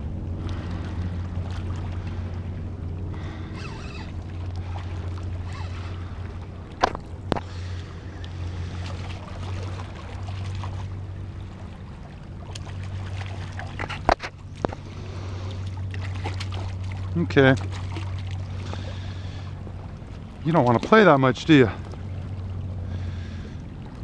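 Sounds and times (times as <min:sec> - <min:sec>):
steady low hum: 0:00.0 - 0:24.0
water splashing and sloshing: 0:00.0 - 0:24.0
sharp splashes or knocks: 0:06.7 - 0:07.5, 0:15.8 - 0:18.8.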